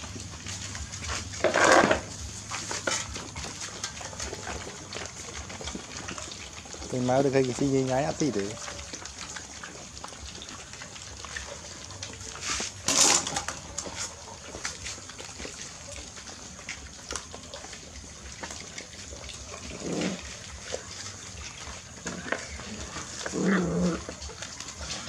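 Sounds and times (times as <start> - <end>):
puppies lapping and chewing: 0.0 - 25.0
bowl clattering: 12.4 - 15.0.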